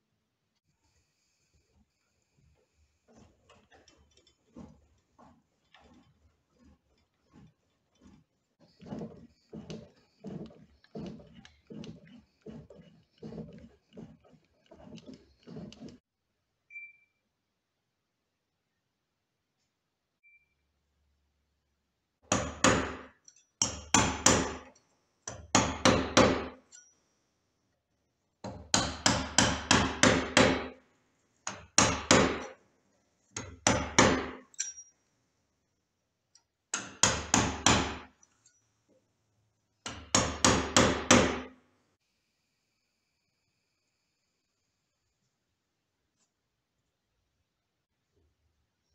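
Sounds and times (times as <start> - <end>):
hammer striking chisel into wood: 22.3 - 24.7, 25.3 - 26.6, 28.4 - 30.8, 31.5 - 32.6, 33.4 - 34.5, 36.7 - 38.1, 39.8 - 41.6.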